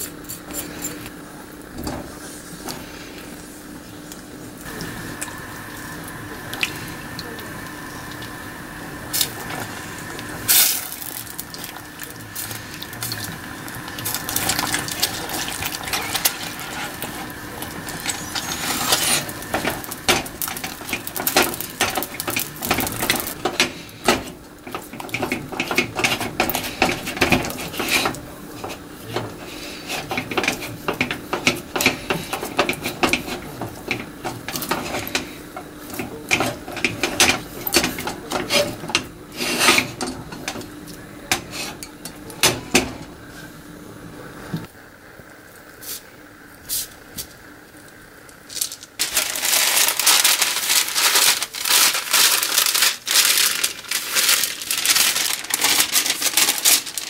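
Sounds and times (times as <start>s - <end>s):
spatula stirring batter in saucepan: 13.0s - 40.6s
spatula scraping and knocking pot: 14.0s - 40.6s.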